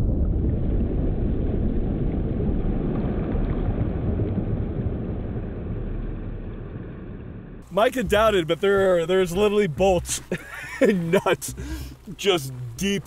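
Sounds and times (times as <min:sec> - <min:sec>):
low steady rumbling: 0:00.0 - 0:13.0.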